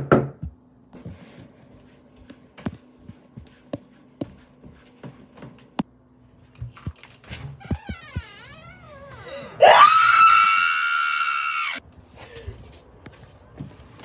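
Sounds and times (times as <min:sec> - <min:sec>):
footsteps walking: 0:01.0 - 0:08.6.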